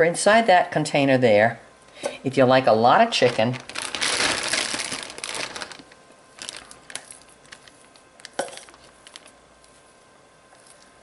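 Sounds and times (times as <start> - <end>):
plastic bag crinkling: 3.1 - 9.4
meat rustling in a bowl: 3.1 - 9.9.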